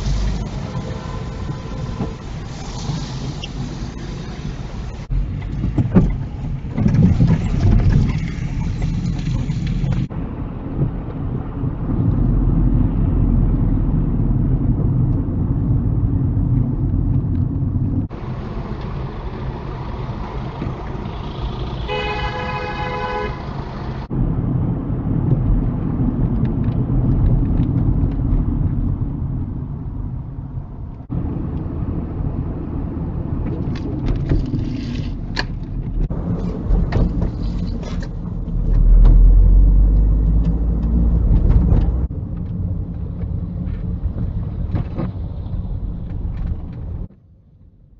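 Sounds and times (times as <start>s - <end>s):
car road and engine noise: 0.0s - 47.9s
car horn: 0.5s - 2.3s, 21.3s - 24.1s.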